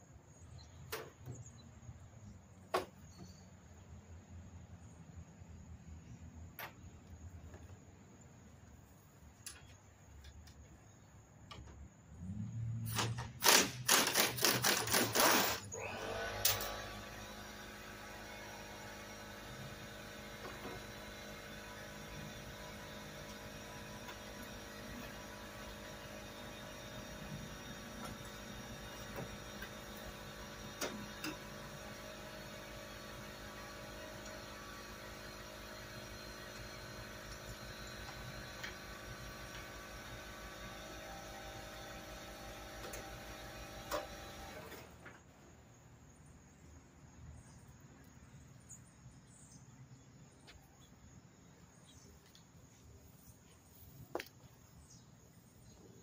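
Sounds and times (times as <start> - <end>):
air tool bursts: 12.9 - 17.5
steady motor hum: 13.4 - 45.8.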